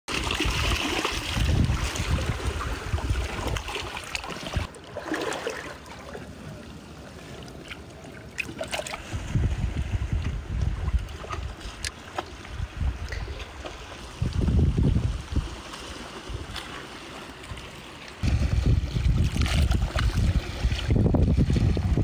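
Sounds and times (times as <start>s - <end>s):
water sloshing and trickling: 0.1s - 22.0s
wind buffeting microphone: 0.3s - 4.7s, 9.0s - 16.6s, 18.2s - 22.0s.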